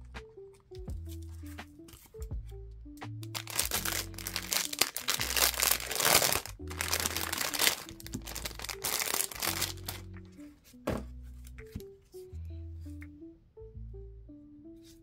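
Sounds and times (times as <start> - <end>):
soft background music with bass: 0.0 - 15.0
plastic bag crinkling: 3.3 - 10.1.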